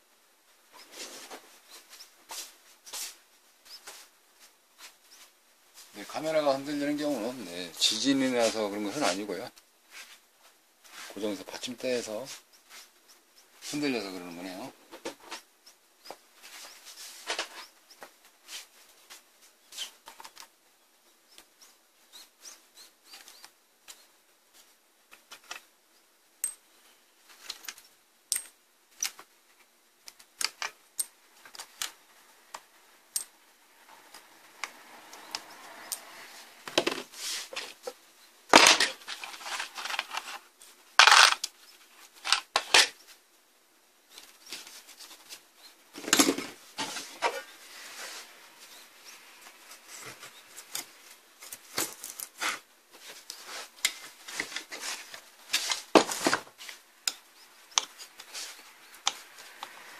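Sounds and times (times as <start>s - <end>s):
soft rubbing: 0.8s - 14.2s, 16.4s - 17.8s, 35.5s - 38.0s, 46.6s - 51.6s, 52.3s - 55.9s.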